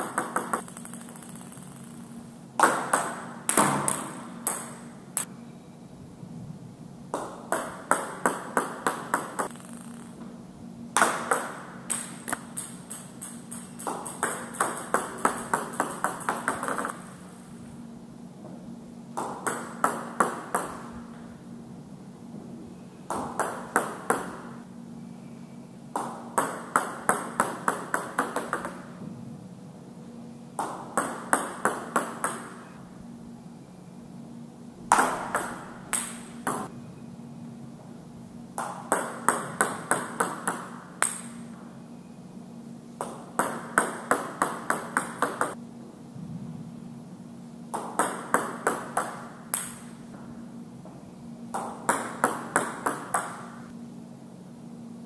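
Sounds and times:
ping pong ball bouncing: 0:00.0 - 0:04.9, 0:07.2 - 0:10.1, 0:11.0 - 0:17.1, 0:19.2 - 0:21.0, 0:23.1 - 0:24.6, 0:26.0 - 0:28.9, 0:30.6 - 0:32.7, 0:34.9 - 0:36.7, 0:38.6 - 0:41.5, 0:43.0 - 0:45.6, 0:47.7 - 0:50.0, 0:51.5 - 0:53.7
steady low hum: 0:00.0 - 0:55.0.

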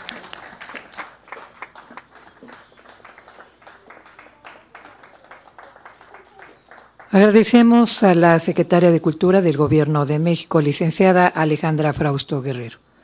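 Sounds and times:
audience clapping: 0:00.0 - 0:07.6.

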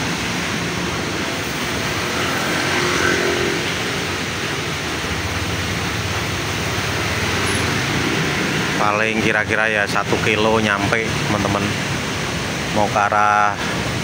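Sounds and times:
traffic on wet street: 0:00.0 - 0:14.0
motorcycle engine running: 0:00.2 - 0:08.8.

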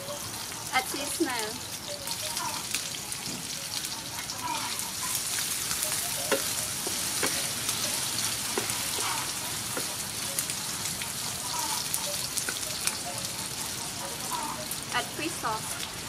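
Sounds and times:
food sizzling in hot oil: 0:00.0 - 0:16.0
wooden spatula scraping a pan: 0:08.4 - 0:09.9.

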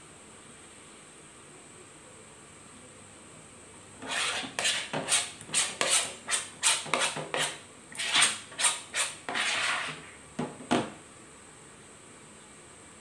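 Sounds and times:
scraping strokes: 0:04.0 - 0:10.2.

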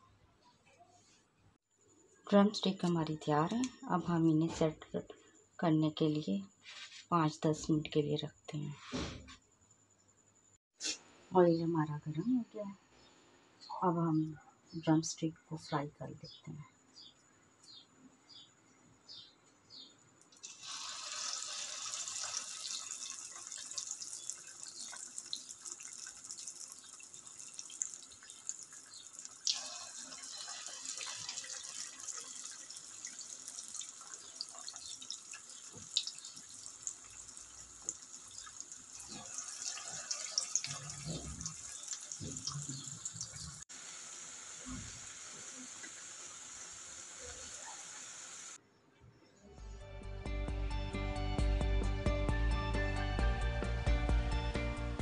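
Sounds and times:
food sizzling in hot oil: 0:20.4 - 0:48.6.

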